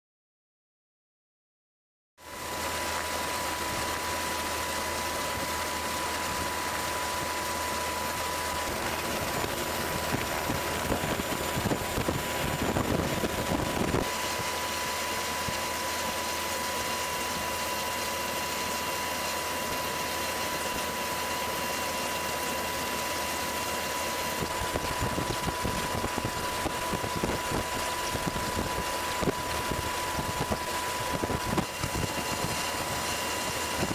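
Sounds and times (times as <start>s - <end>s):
aircraft engine drone: 2.2s - 33.9s
high whine: 2.2s - 33.9s
rough wind buffeting: 8.0s - 14.2s, 24.4s - 33.9s
wind noise: 8.2s - 14.5s, 24.4s - 33.9s.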